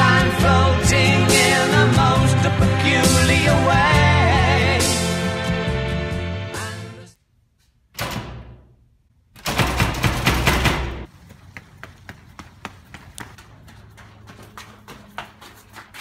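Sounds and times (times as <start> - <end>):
song playing: 0.0 - 7.1
door clattering open: 8.0 - 8.7, 9.4 - 11.1
footsteps on concrete: 11.1 - 16.0.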